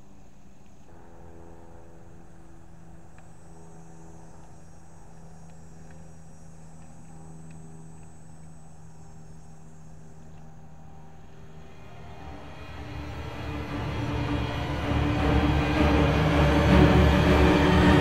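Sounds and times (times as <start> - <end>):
low mechanical hum: 0.0 - 18.0
faint clicks: 4.3 - 10.6.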